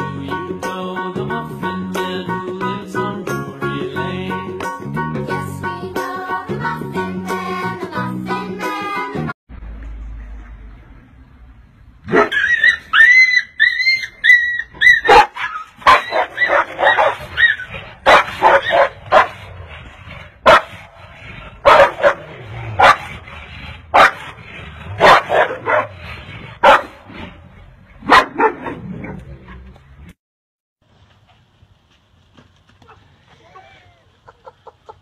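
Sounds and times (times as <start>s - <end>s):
dogs barking: 12.0s - 19.5s, 20.4s - 27.3s, 27.9s - 29.6s
dog yelps: 12.1s - 19.3s.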